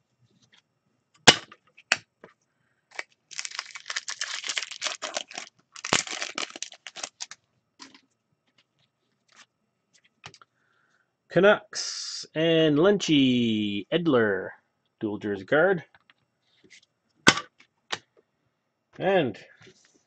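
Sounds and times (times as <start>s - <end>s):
wrapper tearing and crinkling: 2.9s - 8.0s.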